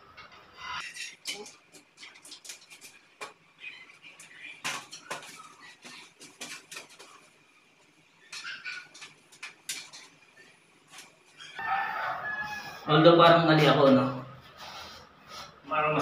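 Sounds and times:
wire fed through conduit: 0.0 - 11.7.

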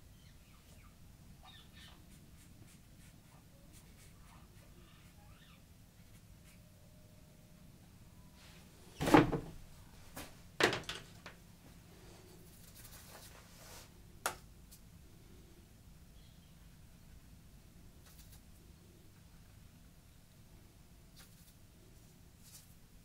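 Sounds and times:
knocks and clunks of hard objects: 9.0 - 9.6, 10.6 - 11.4.

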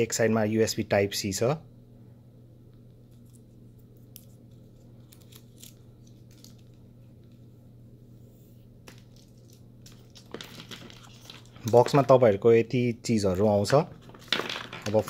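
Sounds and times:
steady low hum: 0.0 - 15.0
paper rustling: 8.9 - 12.2.

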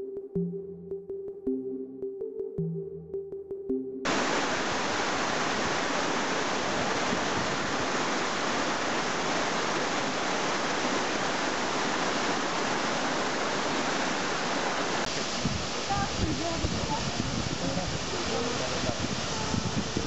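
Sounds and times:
water splashing over boulders: 4.1 - 20.0
waterfall rushing: 4.1 - 20.0.

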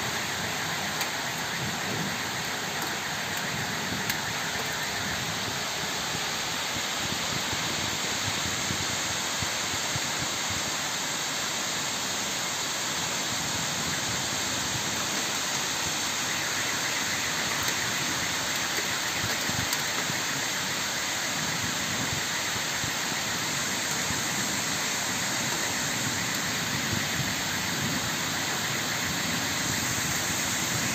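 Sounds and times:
heavy rain on trees: 0.0 - 30.9.

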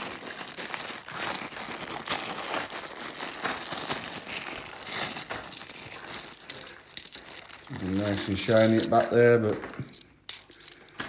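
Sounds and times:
plastic bag crinkling: 0.0 - 9.7
coins clinking: 1.1 - 1.4, 4.4 - 11.0.

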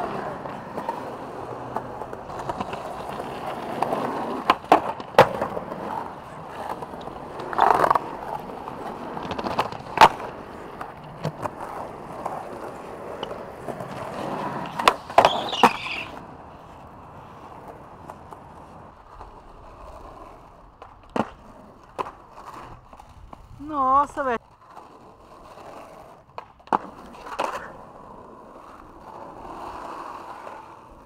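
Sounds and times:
skateboard clacking on ground: 0.0 - 31.0
skateboard scrape: 0.0 - 31.0
skateboard wheels rolling on pavement: 0.0 - 31.0
brief high squeal: 15.3 - 16.2.

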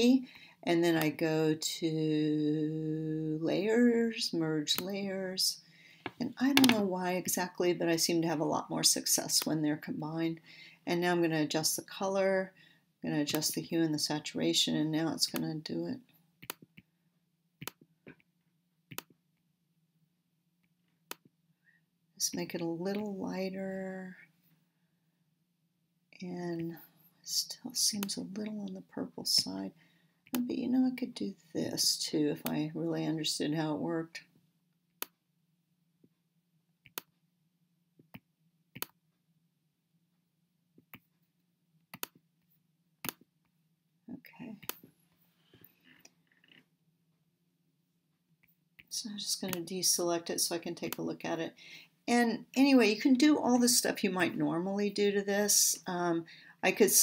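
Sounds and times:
faint steady hum: 0.0 - 17.8
computer mouse clicks: 16.4 - 16.9, 18.9 - 19.1, 36.8 - 37.1, 38.0 - 39.0, 41.9 - 42.2, 43.0 - 43.3, 44.6 - 44.9.

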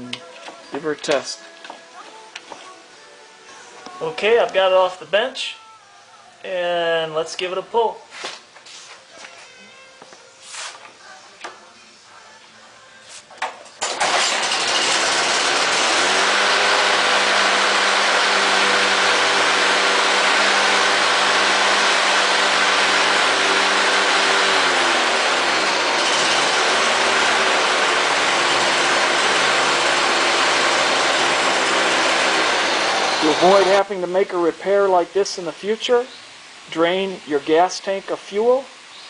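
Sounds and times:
lawn mower engine running: 13.8 - 34.1.

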